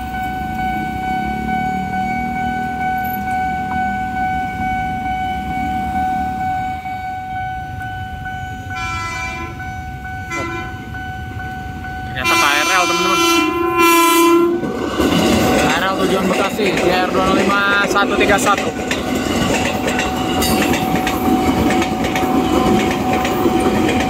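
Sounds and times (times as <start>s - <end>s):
level crossing alarm ringing: 0.0s - 24.0s
train horn: 8.6s - 10.9s, 12.2s - 14.6s.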